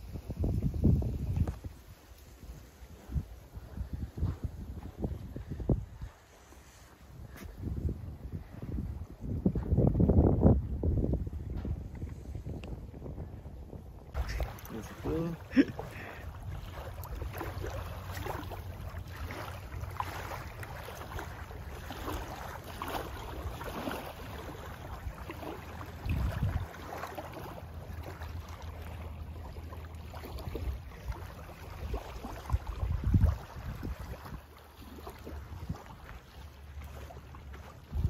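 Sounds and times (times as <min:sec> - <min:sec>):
wind buffeting microphone: 0:00.0 - 0:36.1, 0:37.5 - 0:38.0
small waves lapping: 0:00.0 - 0:38.0.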